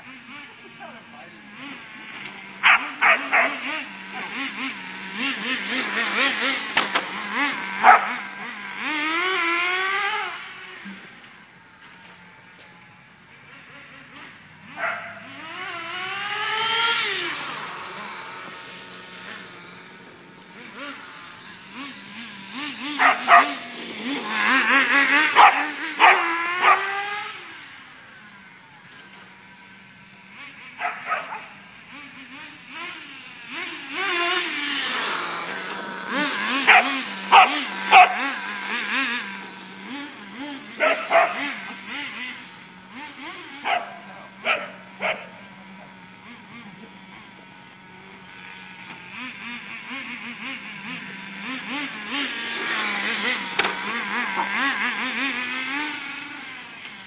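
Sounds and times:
remote-control car engine: 0:00.0 - 0:57.0
dog barking: 0:02.6 - 0:04.4, 0:07.8 - 0:08.2, 0:14.8 - 0:15.2, 0:23.0 - 0:23.6, 0:25.4 - 0:26.9, 0:30.8 - 0:31.5, 0:36.7 - 0:38.2, 0:40.8 - 0:41.5, 0:43.6 - 0:45.3.

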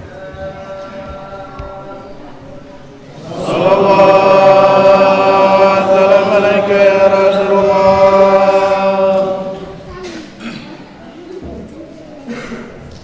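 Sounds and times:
man chanting through microphone: 0:00.0 - 0:02.4, 0:03.2 - 0:09.8.

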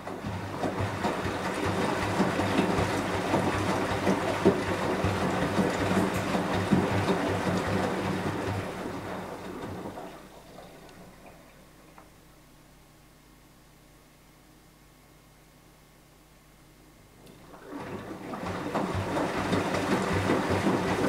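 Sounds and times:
laundry and water sloshing: 0:00.0 - 0:12.0, 0:17.3 - 0:21.0
washing machine motor humming: 0:00.0 - 0:12.2, 0:17.0 - 0:21.0.

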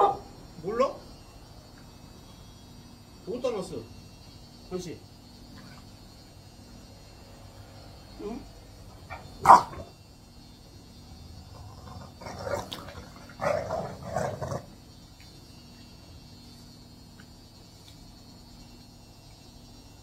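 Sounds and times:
dogs growling and barking: 0:09.0 - 0:09.9, 0:11.5 - 0:14.8.

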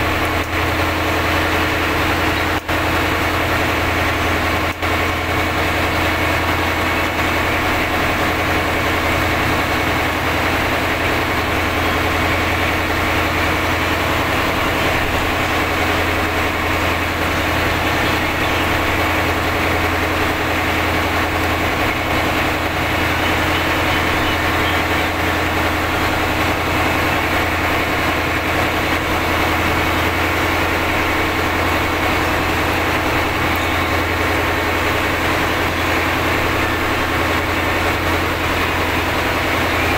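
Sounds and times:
boat engine droning: 0:00.0 - 0:39.9.

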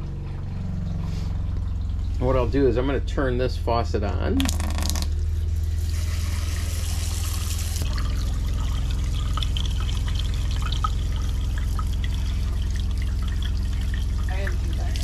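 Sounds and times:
water pump humming: 0:00.0 - 0:15.0
water running into steel sink: 0:04.4 - 0:15.0.

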